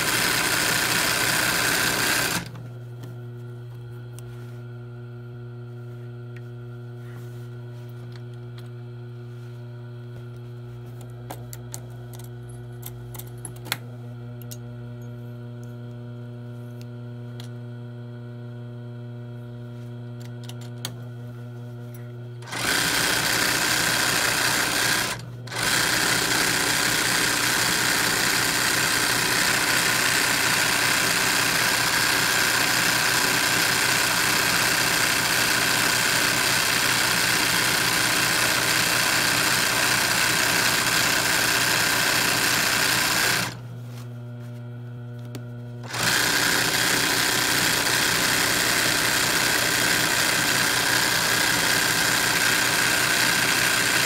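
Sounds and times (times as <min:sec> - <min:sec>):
sewing machine stitching: 0:00.0 - 0:02.6, 0:22.4 - 0:43.6, 0:45.8 - 0:54.0.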